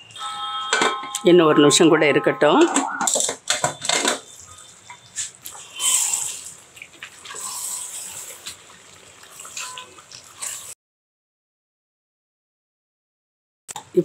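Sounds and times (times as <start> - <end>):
food sizzling and bubbling: 3.4 - 10.8.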